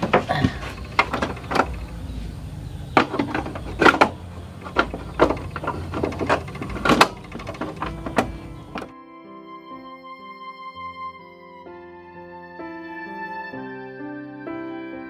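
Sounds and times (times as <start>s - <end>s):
cassette player clicks and clunks: 0.0s - 8.9s.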